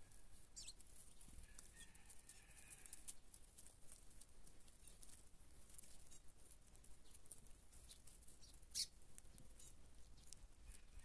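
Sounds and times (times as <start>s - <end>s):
birds pecking at corn: 0.0s - 11.0s
faint bird chirps: 0.6s - 0.8s, 7.8s - 9.0s.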